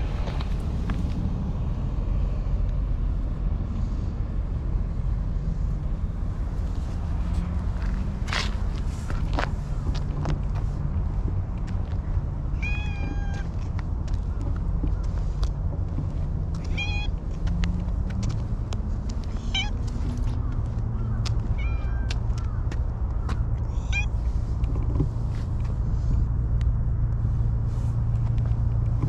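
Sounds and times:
steady low rumble: 0.0 - 29.0
scuffs and rustles: 6.5 - 11.1, 27.2 - 29.0
cat meowing: 12.6 - 13.5, 16.6 - 17.2, 19.4 - 19.8, 21.5 - 22.2.

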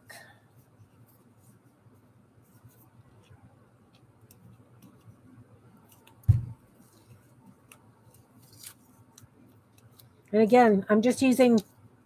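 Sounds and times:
dull thump: 6.2 - 6.6.

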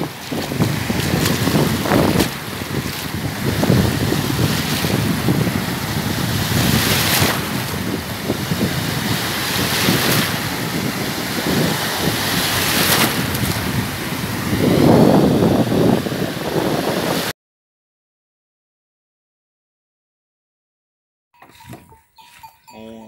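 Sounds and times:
small waves breaking on sand: 0.0 - 17.3
wind buffeting microphone: 0.0 - 17.3.

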